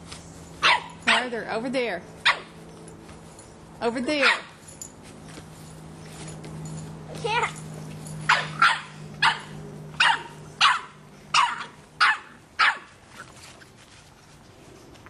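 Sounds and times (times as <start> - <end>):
puppy barking: 0.6 - 1.3, 2.2 - 2.6, 4.2 - 4.6, 8.3 - 13.0.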